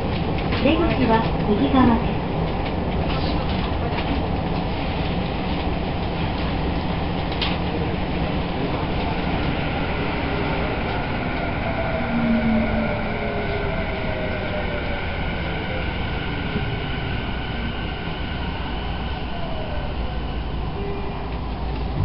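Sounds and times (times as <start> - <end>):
train wheels rumbling: 0.0 - 22.0
traction motor whine: 9.0 - 22.0.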